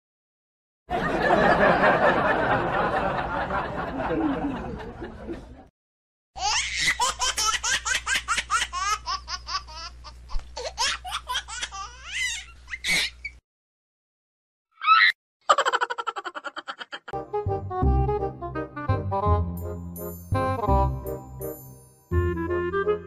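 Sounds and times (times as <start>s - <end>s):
burst of group laughter: 0.9s - 5.7s.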